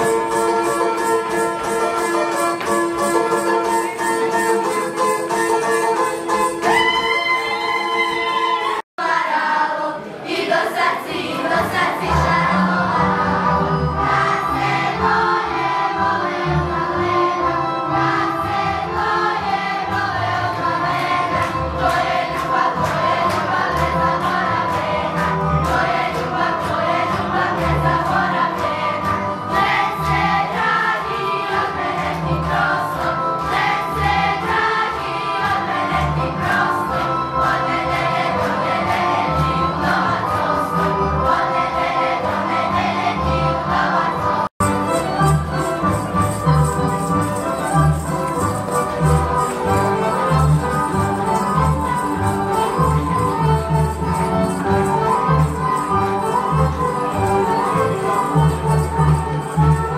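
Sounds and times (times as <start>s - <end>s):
young voices singing folk song: 9.0s - 45.8s.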